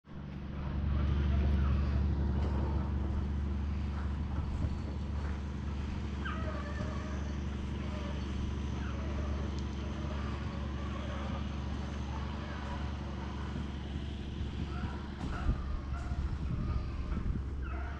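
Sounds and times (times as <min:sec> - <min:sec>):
engine running: 0:00.1 - 0:17.9.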